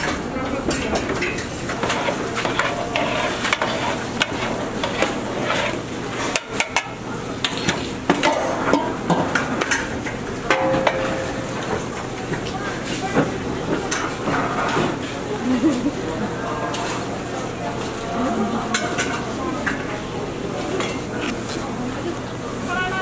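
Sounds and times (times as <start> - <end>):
metal pots and utensils clinking: 0.0 - 11.9, 18.6 - 19.9.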